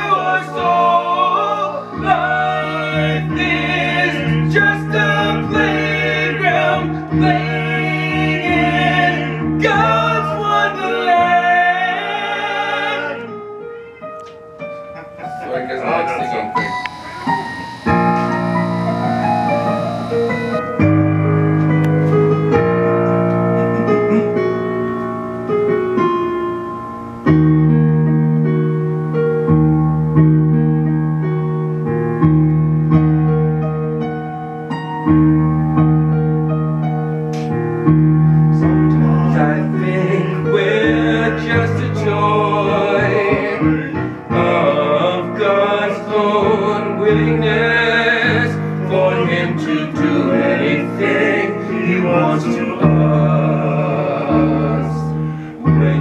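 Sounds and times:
people singing with vibrato: 0.0s - 13.7s, 16.4s - 20.8s, 38.8s - 56.0s
electric keyboard chords: 13.2s - 56.0s
bass line: 16.6s - 21.2s.

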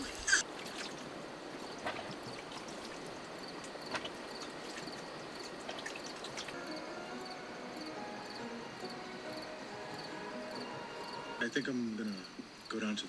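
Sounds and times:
soft hiss of water: 0.0s - 7.5s.

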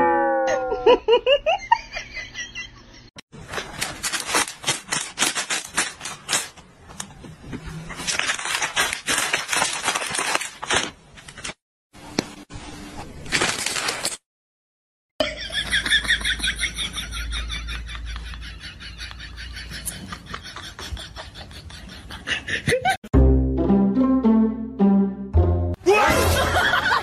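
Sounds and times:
plastic snack bag crinkling: 3.4s - 6.6s, 7.9s - 11.6s, 13.3s - 14.2s.

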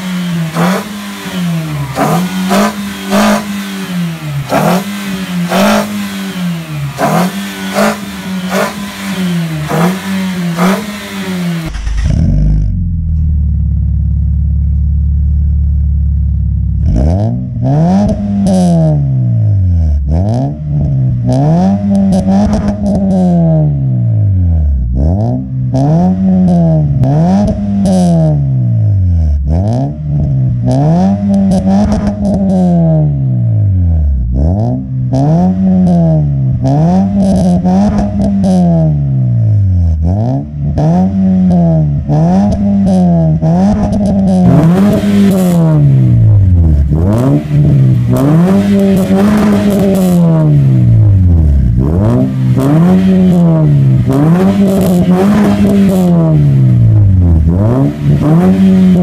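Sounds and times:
car engine idling: 0.0s - 18.3s, 41.8s - 59.0s
car engine revving: 0.0s - 59.0s.

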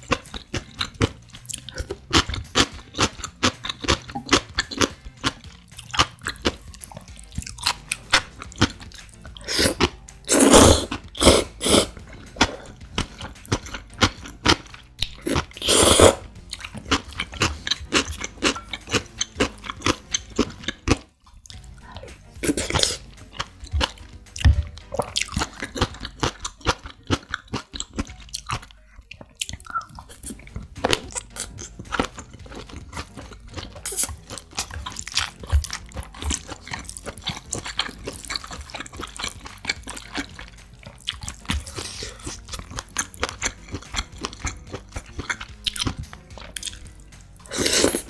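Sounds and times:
wet chewing: 0.0s - 48.0s
loud noodle slurps: 9.4s - 12.7s, 15.2s - 16.2s, 47.4s - 48.0s
mouth clicks: 29.1s - 30.2s.

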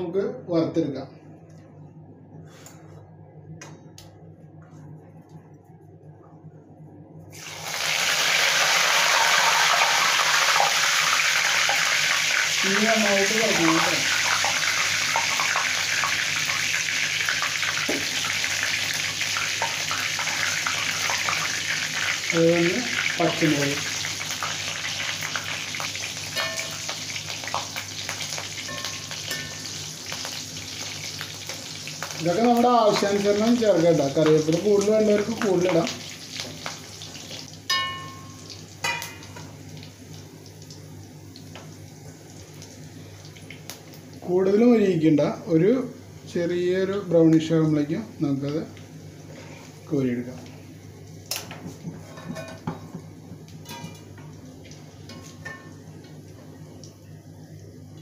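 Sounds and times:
chillies frying in hot oil: 7.4s - 52.8s
oil crackling and popping: 13.6s - 37.6s
metal spoon knocking on pan: 37.7s - 39.4s.

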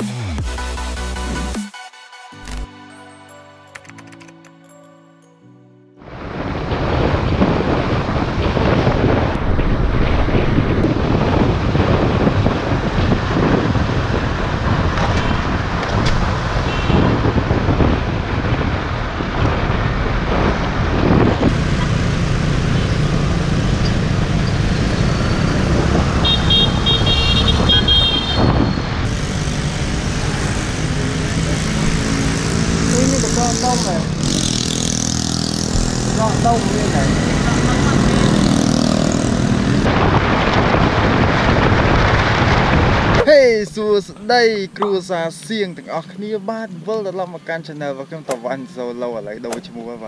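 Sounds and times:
wind buffeting microphone: 6.1s - 44.2s.

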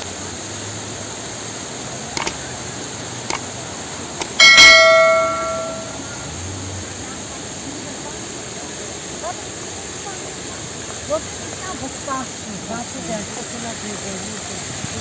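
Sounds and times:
steady background hiss: 0.0s - 15.0s
light clicks: 2.2s - 2.4s
bell-like metallic strike: 4.4s - 6.2s.

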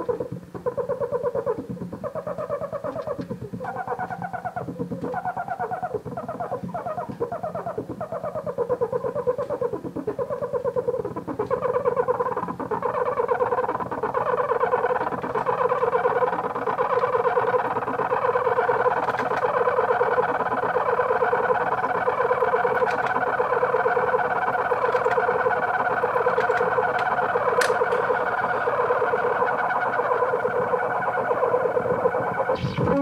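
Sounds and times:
synthesized fluttering buzz: 27.4s - 33.0s.

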